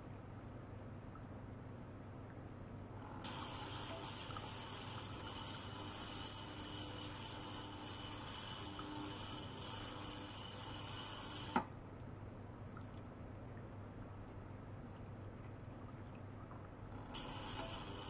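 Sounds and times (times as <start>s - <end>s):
hissing of circulating water: 3.2s - 11.8s, 17.0s - 18.0s.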